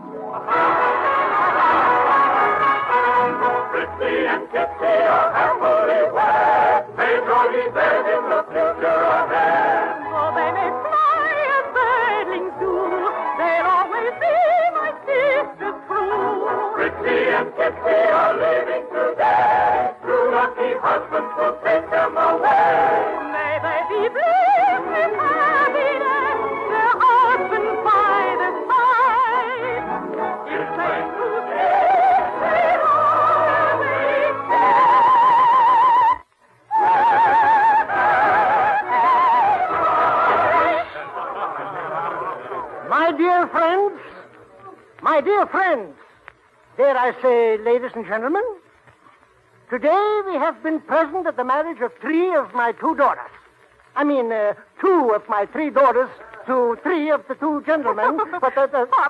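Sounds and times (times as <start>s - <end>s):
orchestral operetta music: 0.0s - 44.0s.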